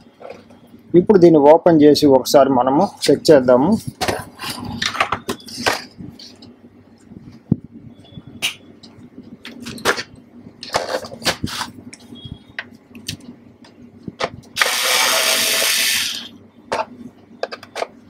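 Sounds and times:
electric screwdriver running: 0:14.6 - 0:16.3.

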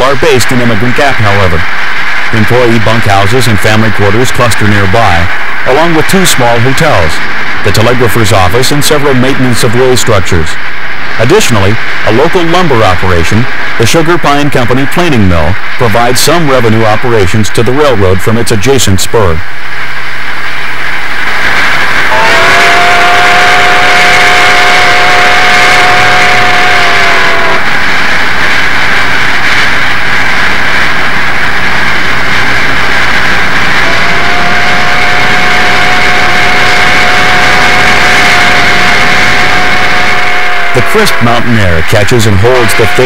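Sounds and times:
steam locomotive working hard: 0:00.0 - 0:43.0
steam locomotive chime whistle: 0:22.1 - 0:27.7, 0:33.8 - 0:43.0.

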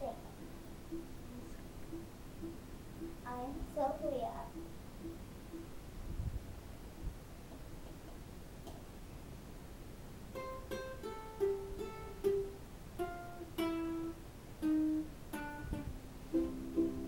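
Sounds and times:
ukulele picking and strumming: 0:00.0 - 0:06.0, 0:10.3 - 0:17.0.

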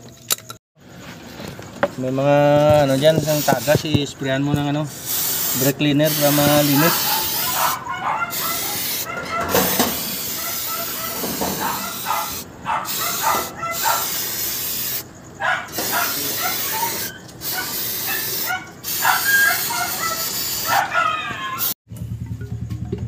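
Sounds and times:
aerosol can spraying: 0:02.9 - 0:04.0, 0:04.9 - 0:15.1, 0:15.7 - 0:21.8.

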